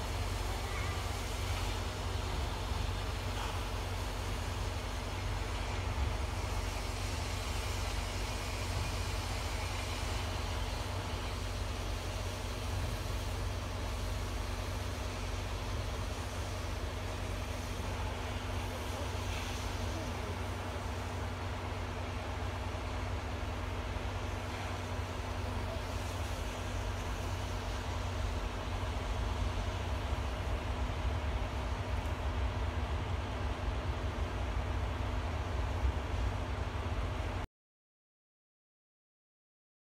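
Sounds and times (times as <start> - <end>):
steam hiss: 0.0 - 36.5
faint constant hum: 0.0 - 37.4
train rumbling: 0.0 - 37.4.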